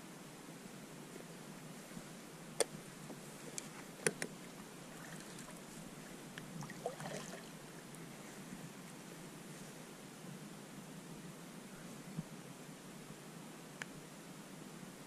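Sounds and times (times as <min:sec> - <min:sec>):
water splashing: 0:04.4 - 0:05.8, 0:06.6 - 0:07.6
water lapping at hull: 0:04.4 - 0:07.9.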